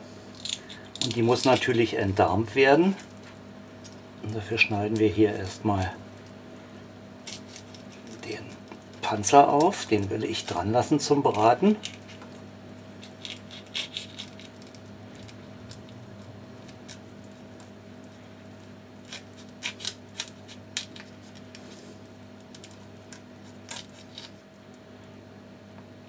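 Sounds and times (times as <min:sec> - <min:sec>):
steady low hum: 0:00.0 - 0:26.0
knife cracking prawn shell: 0:00.4 - 0:01.6, 0:13.0 - 0:15.9, 0:19.0 - 0:21.6, 0:22.4 - 0:24.4.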